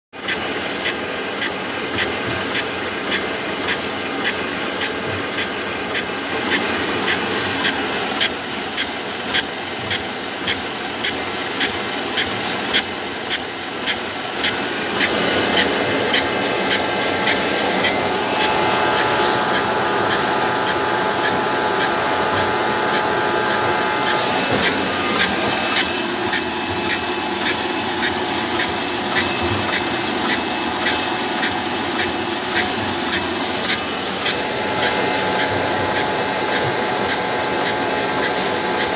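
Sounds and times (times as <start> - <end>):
bottling machine and conveyor running: 0.2 - 38.9
steady whine: 0.2 - 38.9.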